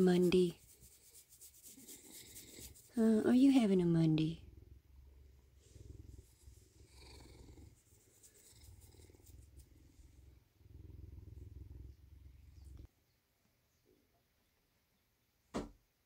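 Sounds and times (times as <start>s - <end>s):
bobcat purring: 0.2s - 12.9s.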